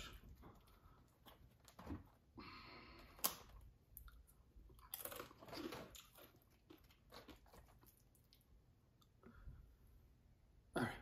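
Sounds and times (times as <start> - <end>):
tortilla chip crunching: 3.0 - 8.5.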